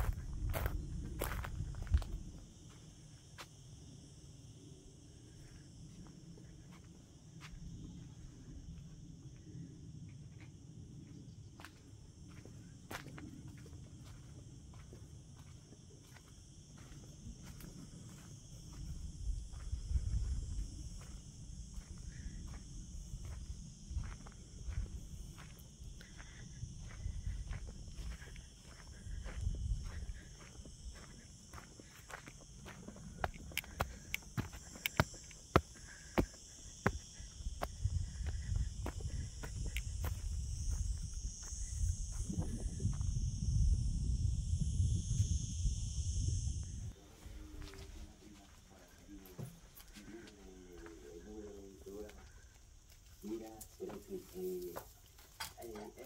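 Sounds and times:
insects chirring: 0.0s - 56.0s
footsteps on stony ground: 11.6s - 42.9s.

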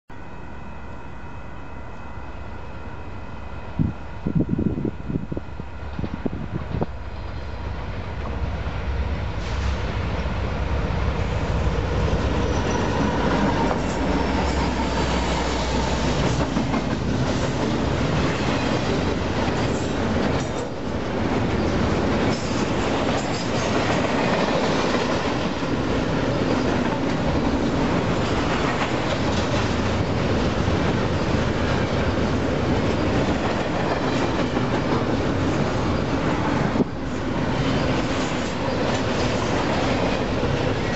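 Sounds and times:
diesel locomotives rumbling: 0.1s - 40.9s
train wheels clattering: 11.3s - 40.9s.

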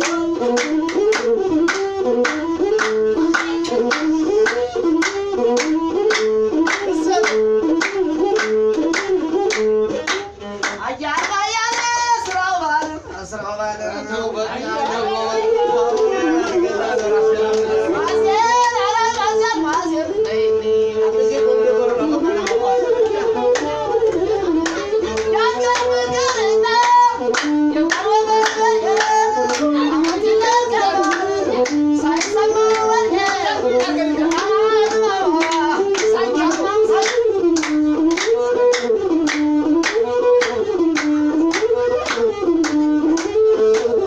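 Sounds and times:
hand clapping: 0.0s - 13.0s, 15.9s - 18.8s, 19.6s - 20.4s, 22.4s - 44.0s
bowed fiddle phrase: 35.7s - 44.0s.

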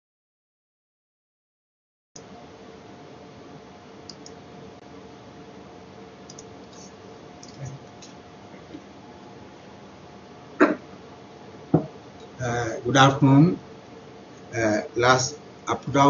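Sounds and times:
low room hum: 2.2s - 16.0s
faint small clicks: 4.1s - 4.4s, 6.3s - 8.8s.

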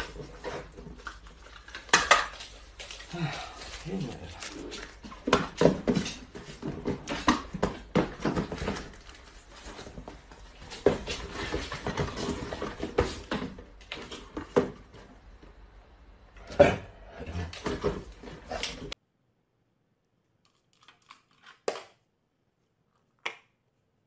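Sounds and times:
cardboard boxes knocking and rustling: 5.0s - 15.1s.

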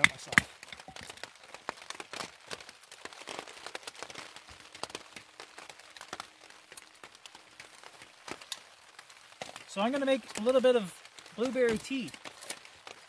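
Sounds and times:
rain dripping on plastic tarp: 0.0s - 13.0s.

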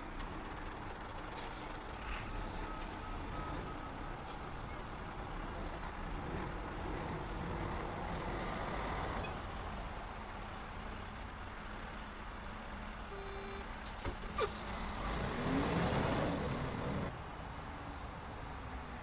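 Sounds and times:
brief tone: 13.1s - 13.7s.

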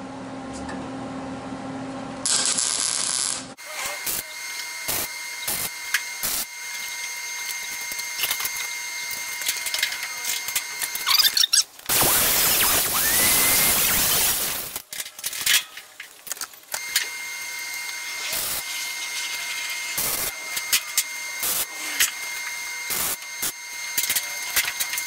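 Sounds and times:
steady welding hiss: 2.2s - 11.0s, 11.9s - 14.8s, 16.8s - 25.0s
welder tack-welding bursts: 2.2s - 15.6s, 16.7s - 25.0s.

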